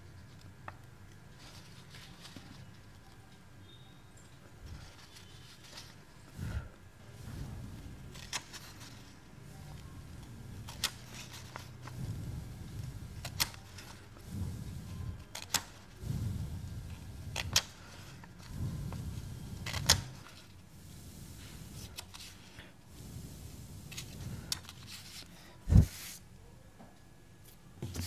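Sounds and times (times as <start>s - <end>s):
paper rustling: 1.4s - 3.0s, 10.6s - 12.0s, 19.6s - 20.6s
incense stick punching paper clicks: 10.6s - 12.0s, 15.3s - 15.9s, 19.6s - 20.3s.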